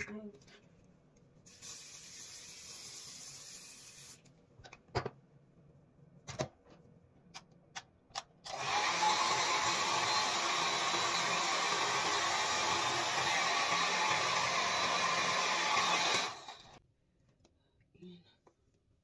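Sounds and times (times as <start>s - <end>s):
hair dryer blowing: 8.5s - 16.8s.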